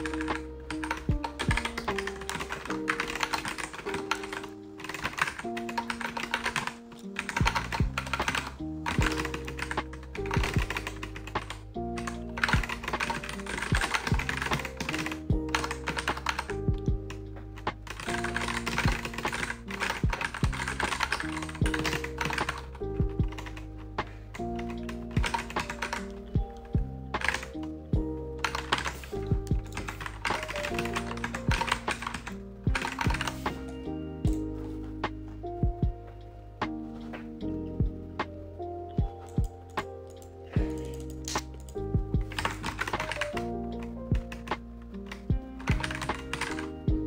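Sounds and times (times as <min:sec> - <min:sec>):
typing on computer keyboard: 0:00.0 - 0:23.7, 0:24.4 - 0:26.2, 0:27.2 - 0:27.5, 0:28.4 - 0:33.7, 0:39.2 - 0:46.8
lofi background music: 0:00.0 - 0:47.0.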